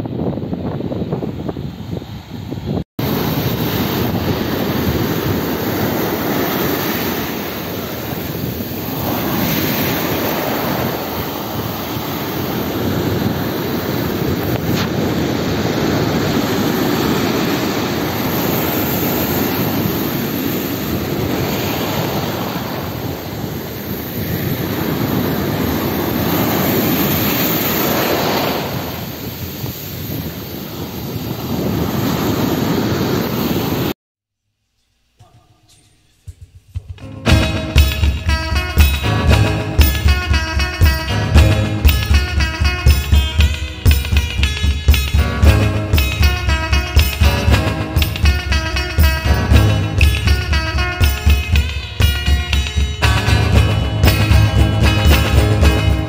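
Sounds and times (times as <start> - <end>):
ocean surf breaking: 1.6 - 34.0, 37.0 - 56.0.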